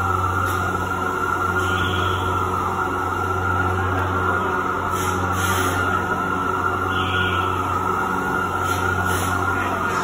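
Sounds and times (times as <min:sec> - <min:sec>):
machine hum with hiss: 0:00.0 - 0:10.0.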